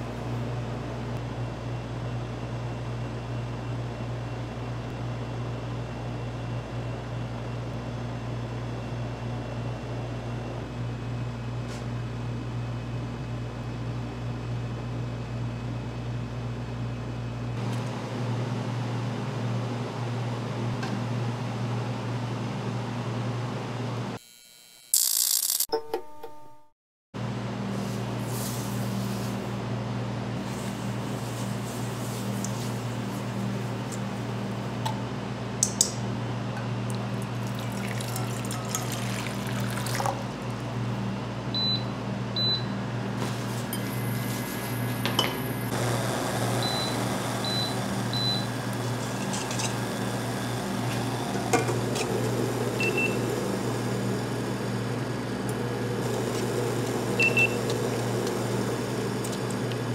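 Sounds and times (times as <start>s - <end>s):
electronic appliance beeps: 41.6s - 42.8s, 46.6s - 48.6s, 52.7s - 53.4s, 57.1s - 58.0s.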